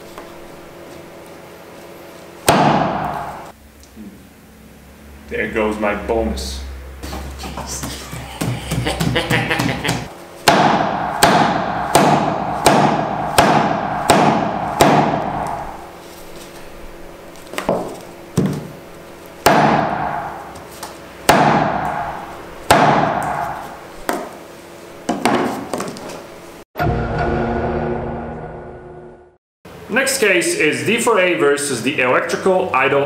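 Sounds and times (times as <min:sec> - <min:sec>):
meat cleaver chopping on wood: 0:02.5 - 0:03.3, 0:08.4 - 0:15.6, 0:19.4 - 0:20.7, 0:21.3 - 0:24.3.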